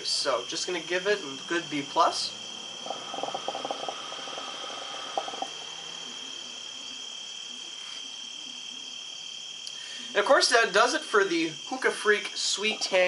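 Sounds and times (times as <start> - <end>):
crickets chirping: 0.0 - 13.0
hookah bubbling: 1.2 - 7.4, 12.5 - 13.0.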